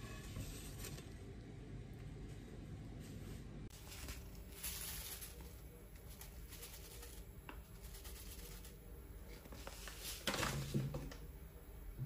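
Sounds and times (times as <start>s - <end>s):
coffee grounds pouring: 3.7s - 8.8s
paper bag rustle: 3.7s - 10.8s.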